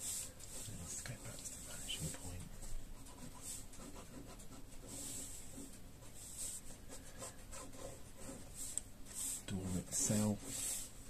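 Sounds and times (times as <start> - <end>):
pen scratching on paper: 0.0 - 11.0.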